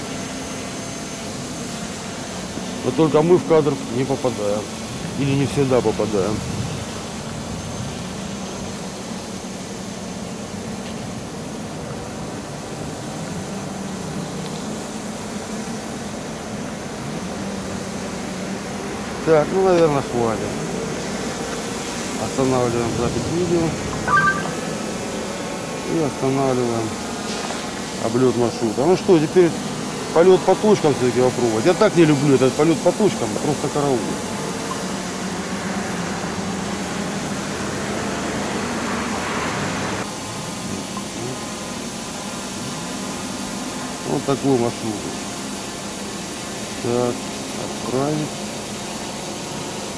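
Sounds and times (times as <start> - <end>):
quadcopter propellers humming: 0.0 - 5.2
even hiss: 0.0 - 49.9.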